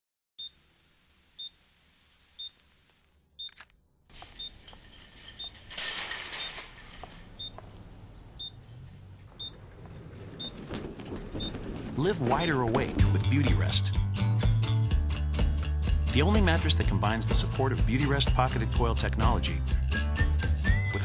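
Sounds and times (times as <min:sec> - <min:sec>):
shopping carts rattling: 0:04.1 - 0:07.6.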